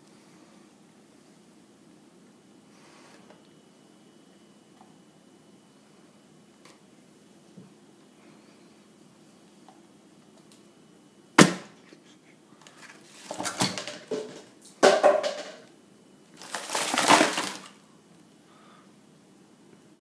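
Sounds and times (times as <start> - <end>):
packaging crinkling and crushing: 12.6 - 14.4, 16.3 - 17.8
watermelon knocking on stone countertop: 13.8 - 15.6.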